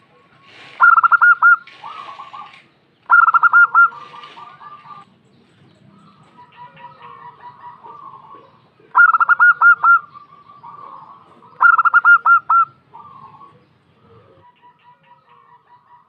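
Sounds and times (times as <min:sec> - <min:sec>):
dove cooing: 0:00.0 - 0:05.1, 0:06.0 - 0:16.0
birds chirping: 0:00.0 - 0:16.0.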